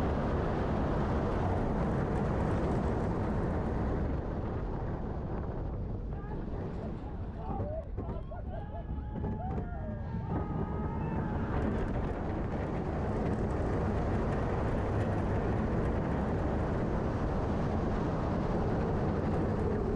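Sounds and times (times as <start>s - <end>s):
roller coaster train running on track: 0.0s - 19.9s
wind roar on microphone: 0.0s - 19.9s
riders yelling: 7.4s - 11.6s.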